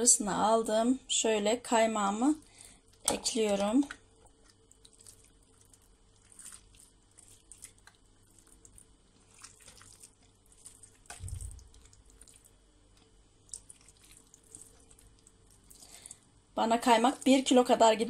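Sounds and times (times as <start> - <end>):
soft wet plops of cream: 2.6 - 16.2
low thump: 11.2 - 11.7.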